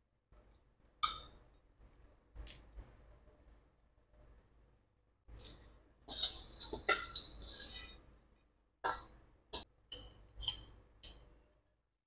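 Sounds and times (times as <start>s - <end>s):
noodles scraped out of metal pan: 5.4s - 8.0s.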